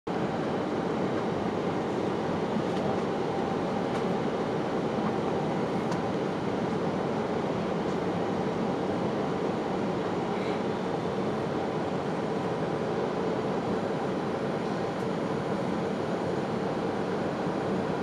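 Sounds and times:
airliner cabin rush: 0.4s - 18.0s.

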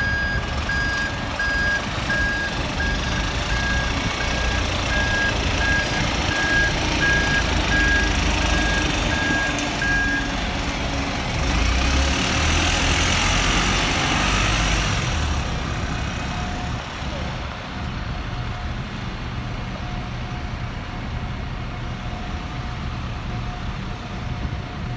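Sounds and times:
reversing alarm beeping: 0.0s - 10.4s
bus engine running: 0.0s - 24.9s.

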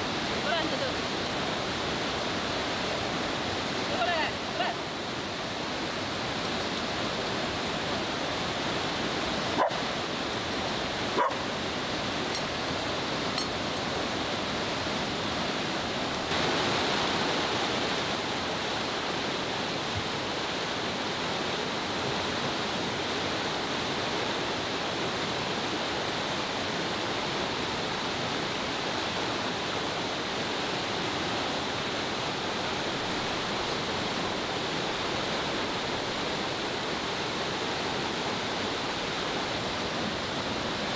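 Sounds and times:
fast-flowing river rushing: 0.0s - 40.9s
dog barking: 9.6s - 9.8s, 11.2s - 11.5s.

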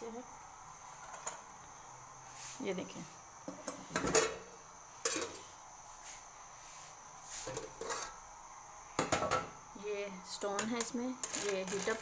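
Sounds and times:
lid clanking on metal pot: 3.6s - 5.4s, 7.5s - 8.2s, 9.0s - 9.5s.

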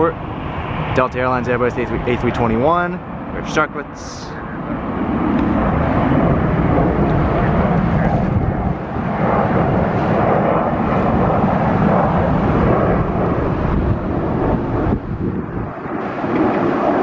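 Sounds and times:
jet airliner engines rumbling: 0.0s - 17.0s.

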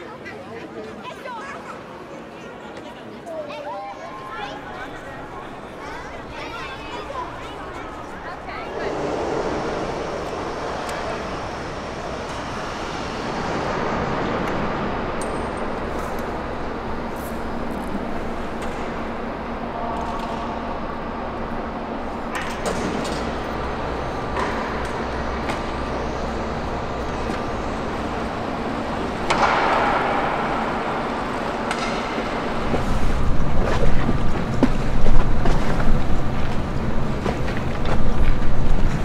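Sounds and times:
outdoor background noise: 0.0s - 39.0s
wind buffeting microphone: 4.6s - 19.6s.

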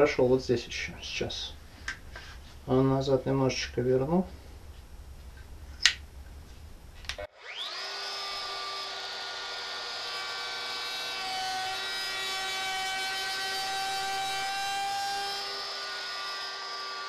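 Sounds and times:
wood router whining: 7.2s - 17.0s.

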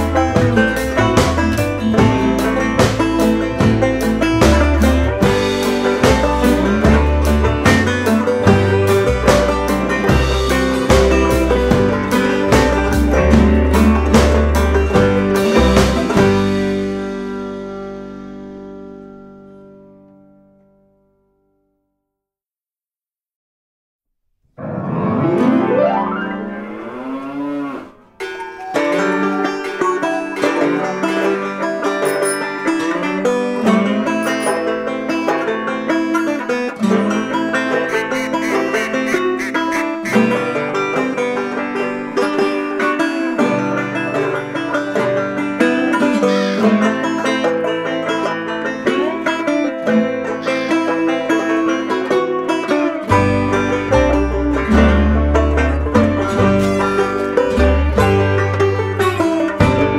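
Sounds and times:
deep bass: 0.0s - 19.1s, 53.1s - 59.9s
upbeat banjo music: 0.0s - 20.6s, 24.6s - 26.8s, 28.2s - 59.9s
gliding pitched sound effect: 24.6s - 27.4s.

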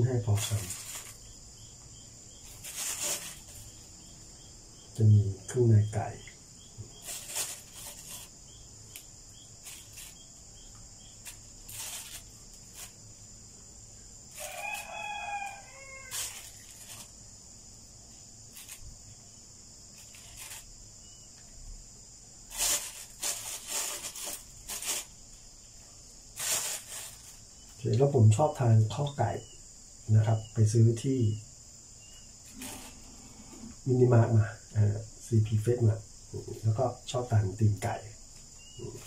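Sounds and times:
crickets chirring: 0.0s - 39.0s
rooster crowing: 14.3s - 16.7s.

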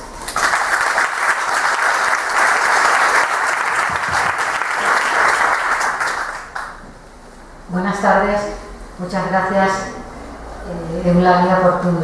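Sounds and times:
audience applauding: 0.3s - 6.8s.

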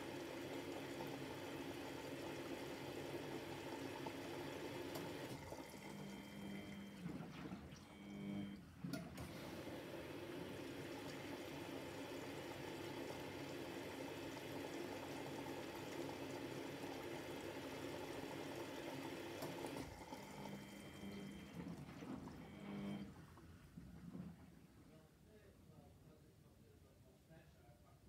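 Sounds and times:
water rushing in washing machine drum: 0.0s - 8.1s, 8.8s - 24.8s
washing machine hum: 0.0s - 25.4s.

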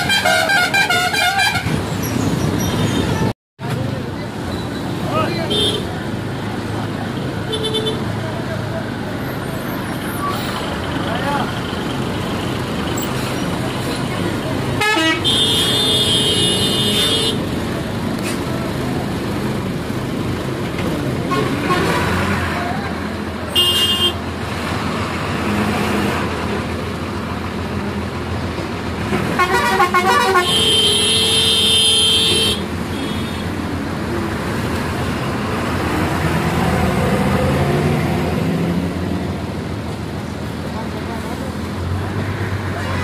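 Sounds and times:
vehicle horns: 0.0s - 1.9s, 5.4s - 6.0s, 7.4s - 8.1s, 14.6s - 17.5s, 21.3s - 22.4s, 23.5s - 24.2s, 29.1s - 33.6s
bus engines and road traffic: 0.0s - 43.0s.

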